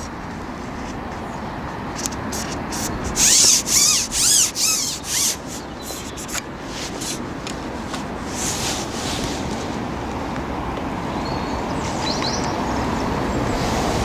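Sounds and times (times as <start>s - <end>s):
fishing pole rubbing and squeaking: 2.0s - 7.2s.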